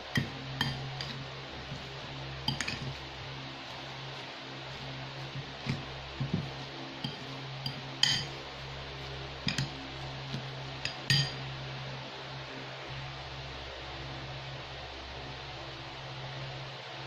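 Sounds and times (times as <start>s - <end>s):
steady low hum: 0.0s - 17.0s
fork scraping ceramic bowl: 0.2s - 1.8s, 2.5s - 3.0s, 4.7s - 8.4s.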